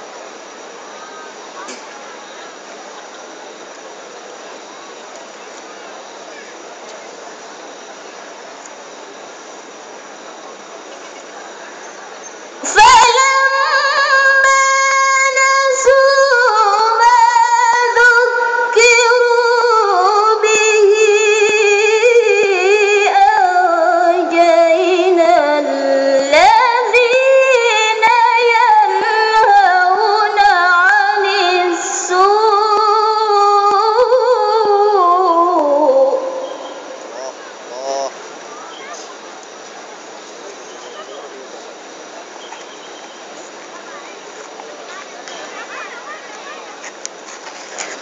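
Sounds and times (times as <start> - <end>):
woman reciting melodically: 12.6 - 37.5.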